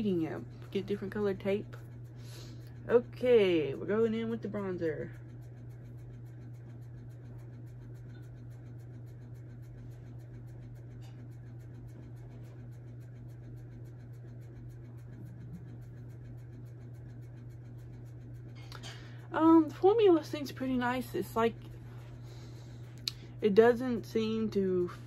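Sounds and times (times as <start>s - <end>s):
low hum: 0.0s - 25.0s
makeup brush brushing: 19.3s - 25.0s.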